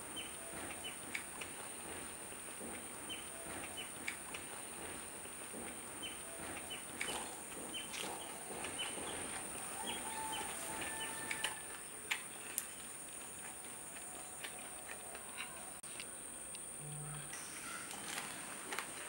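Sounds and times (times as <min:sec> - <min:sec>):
sharp clicks: 0:11.1 - 0:17.0.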